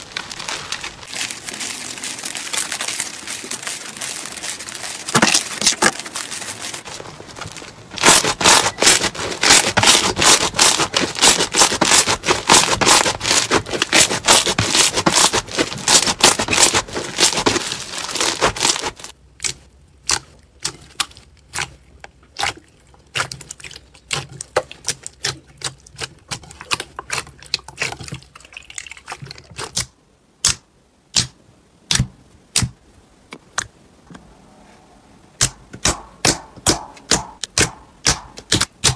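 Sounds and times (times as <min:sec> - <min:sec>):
slime crackling and popping: 0:00.0 - 0:28.2.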